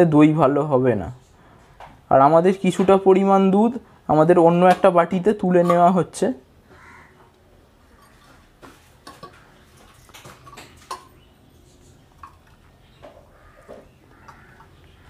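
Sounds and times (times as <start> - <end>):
milk pouring: 12.0 - 15.0.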